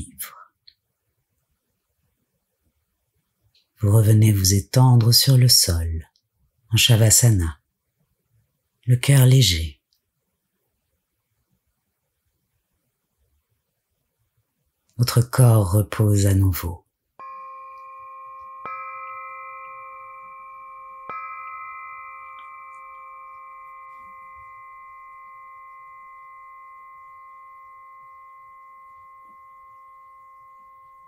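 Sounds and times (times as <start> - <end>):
singing bowl ringing: 17.2 - 31.0.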